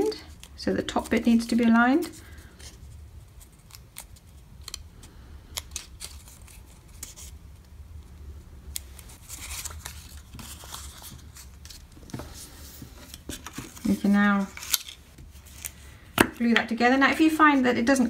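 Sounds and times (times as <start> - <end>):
low steady hum: 0.0 - 18.0
paper card rustling and clicking: 5.5 - 7.7, 8.7 - 16.4.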